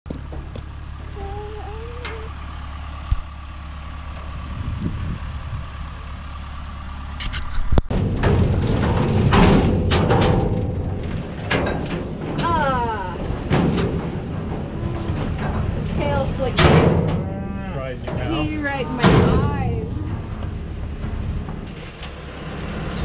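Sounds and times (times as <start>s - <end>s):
vehicle engine running: 0.1s - 23.0s
metal clanging and rattling: 7.2s - 23.0s.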